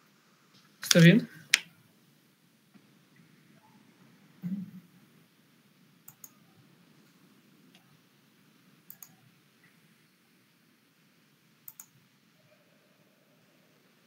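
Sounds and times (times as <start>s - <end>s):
computer mouse double clicks: 8.9s - 9.1s, 11.7s - 11.9s.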